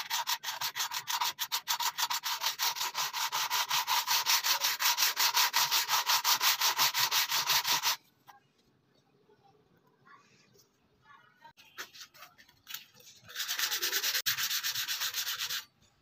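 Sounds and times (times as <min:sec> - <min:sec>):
metal rasping on sandpaper: 0:00.0 - 0:08.0, 0:13.0 - 0:15.7.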